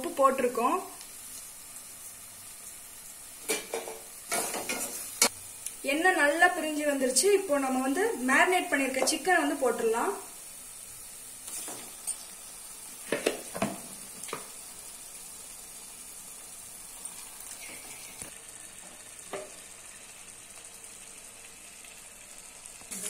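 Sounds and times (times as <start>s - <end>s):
food sizzling in hot oil: 0.0s - 23.0s
knocks and clunks in pot: 3.4s - 5.0s, 13.0s - 14.5s.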